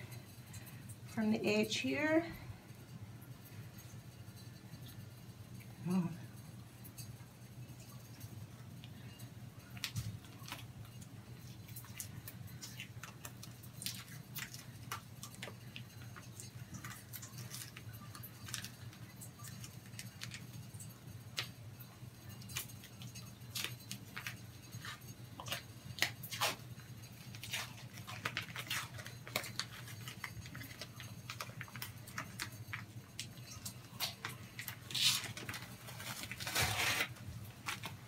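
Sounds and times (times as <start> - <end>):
thin plastic crinkling: 7.8 - 21.6, 22.2 - 38.0.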